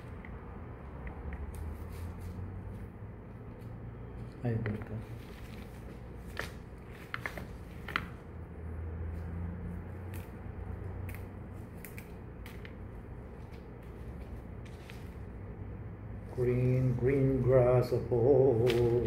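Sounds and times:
handling noises: 1.0 - 8.3.

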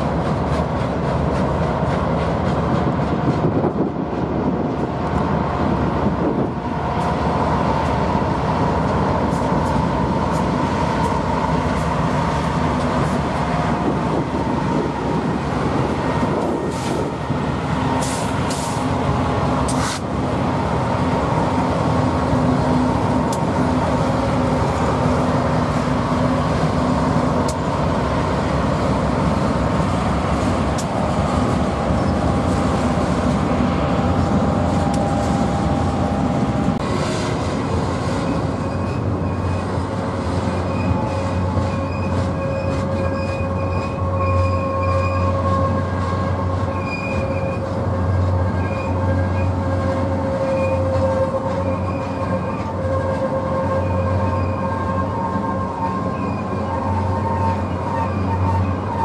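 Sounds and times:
freight train rumbling past: 0.0 - 59.0
train wheels squealing: 31.8 - 36.6, 38.0 - 59.0.

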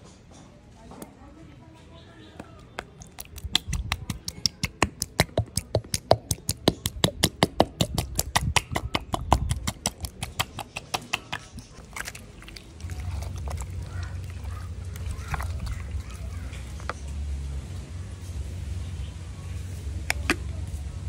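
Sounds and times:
hand tapping bottle: 2.8 - 11.6.

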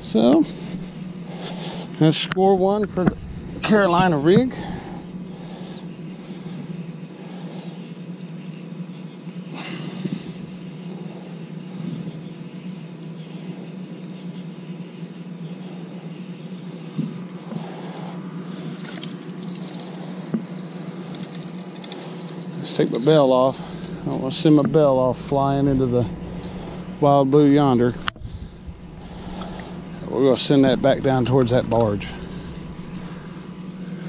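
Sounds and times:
low steady hum: 0.0 - 34.0
night insects trilling: 0.0 - 34.0
fishing-rod bell jingling: 18.8 - 26.9.

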